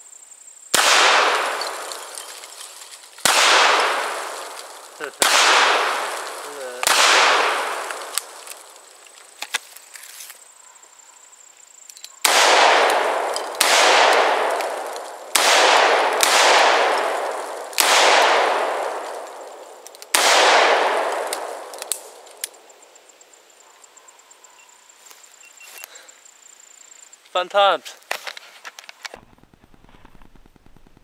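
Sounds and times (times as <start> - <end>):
revolver gunshots echoing: 0.7 - 2.2, 3.2 - 8.4, 12.2 - 22.2
gun handling clicks: 7.8 - 10.4, 11.8 - 12.2, 21.1 - 22.6.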